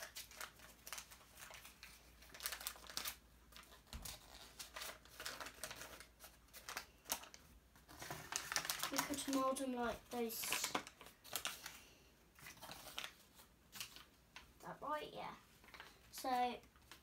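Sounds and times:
wrapper crinkling: 0.0 - 11.8, 12.4 - 14.1.

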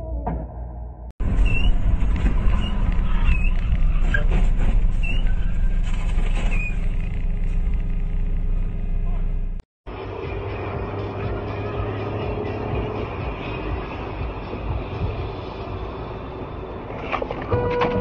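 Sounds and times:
vehicle engine and road noise: 1.2 - 18.0
short high squeaks: 2.4 - 7.2.

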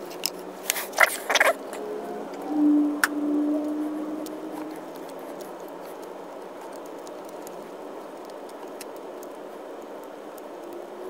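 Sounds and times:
room noise hiss: 0.0 - 11.0
background music tone: 1.6 - 6.4.

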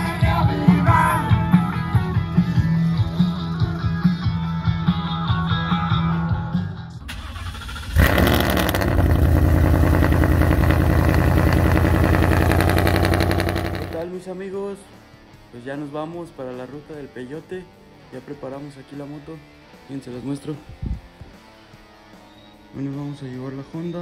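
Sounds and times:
rock music with singing: 0.0 - 7.1, 13.9 - 24.0
engine running loudly: 7.9 - 14.1.

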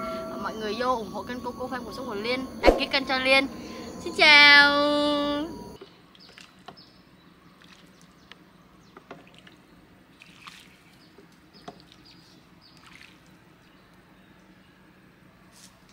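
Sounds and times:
low hum: 0.0 - 5.8.

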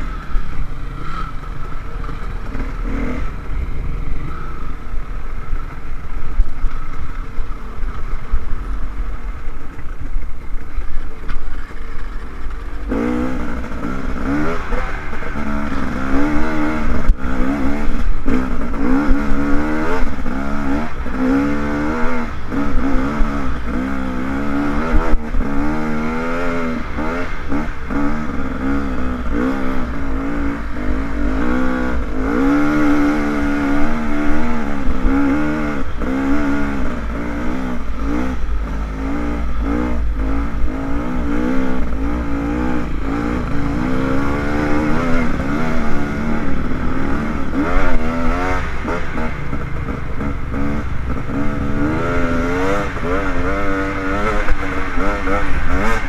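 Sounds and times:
dirt bike engine revving: 0.0 - 6.9, 11.6 - 56.0.

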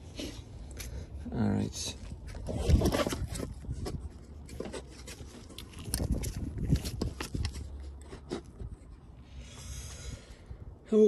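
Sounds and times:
hoses and wires clicking and scraping: 1.8 - 9.2.

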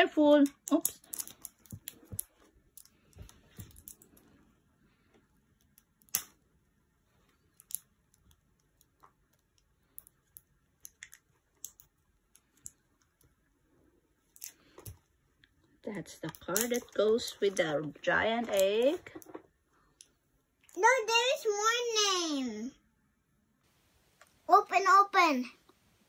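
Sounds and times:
plastic toy capsule clicks: 16.3 - 17.0.

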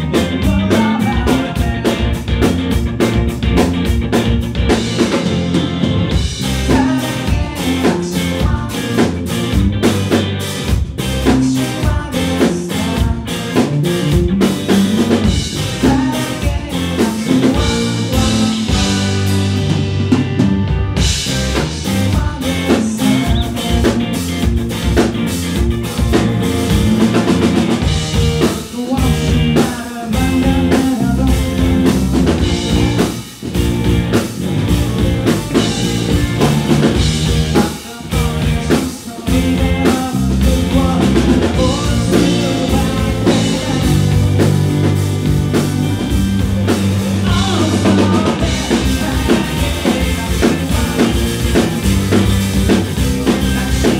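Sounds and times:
man singing: 0.0 - 2.6, 6.4 - 9.6, 11.2 - 14.2, 15.1 - 19.9, 21.3 - 24.3, 28.3 - 33.1, 35.3 - 45.0, 47.2 - 53.9
drum kit beat: 0.0 - 53.9
electric guitar: 0.0 - 53.9.

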